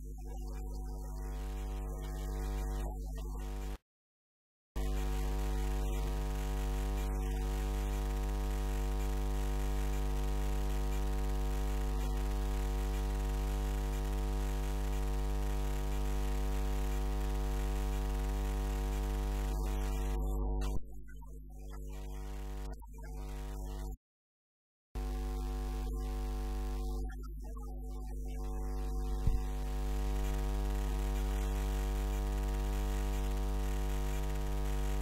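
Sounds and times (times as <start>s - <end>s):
electrical mains hum: 4.8s - 20.8s, 28.4s - 35.0s.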